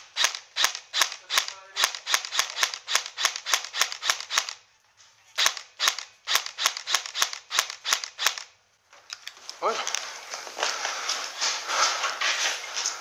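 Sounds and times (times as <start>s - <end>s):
airsoft rifle shots: 0.0s - 4.6s, 5.4s - 8.5s.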